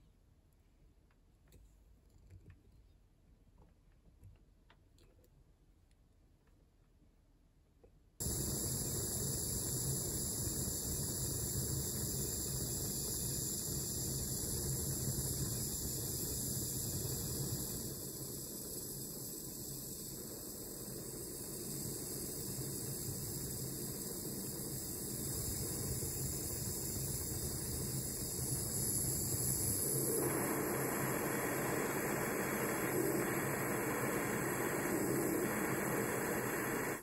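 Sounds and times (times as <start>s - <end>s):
gas torch hissing: 8.2s - 37.0s.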